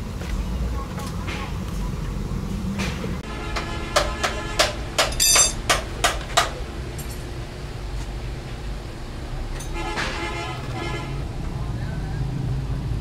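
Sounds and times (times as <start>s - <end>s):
hammer striking metal: 3.4s - 7.2s.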